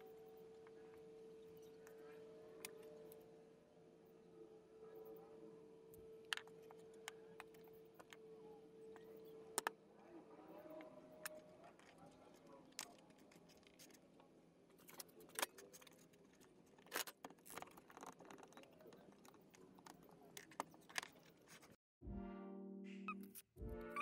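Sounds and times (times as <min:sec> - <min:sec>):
music: 0:22.0 - 0:24.0.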